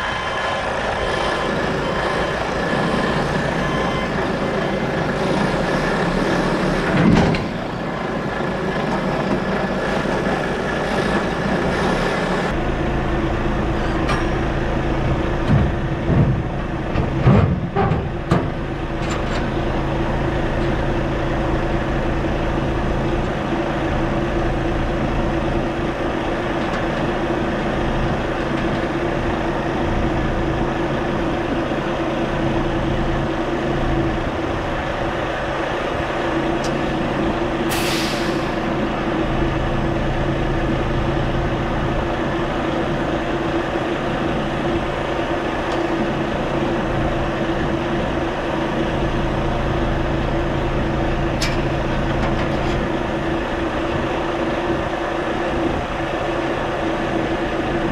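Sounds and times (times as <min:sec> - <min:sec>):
diesel truck engine idling: 0:00.0 - 0:57.9
air brake hiss: 0:37.7 - 0:38.6.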